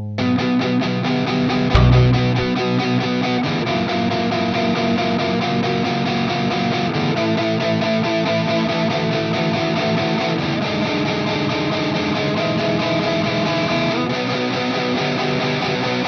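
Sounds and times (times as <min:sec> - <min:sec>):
electric guitar riff: 0:00.0 - 0:04.1
bass: 0:00.0 - 0:14.1
drums: 0:01.4 - 0:02.6.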